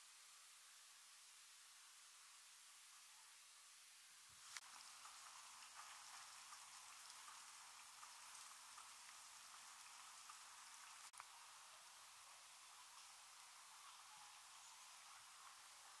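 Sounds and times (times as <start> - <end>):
light rain on water: 0.0 - 16.0.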